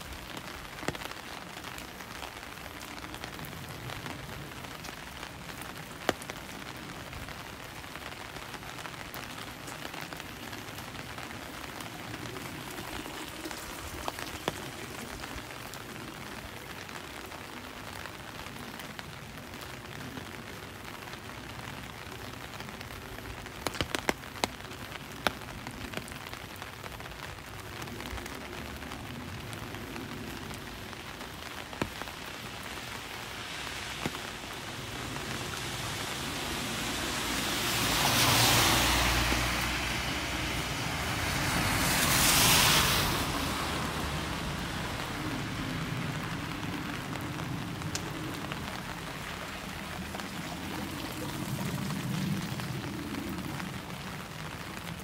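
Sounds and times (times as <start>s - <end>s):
steady rain: 0.0s - 55.0s
water drips tapping: 12.6s - 15.0s.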